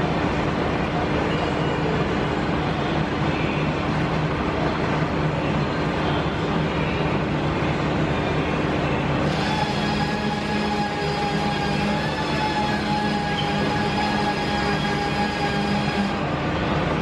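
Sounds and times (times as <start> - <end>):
bead roller motor hum: 9.3 - 16.3.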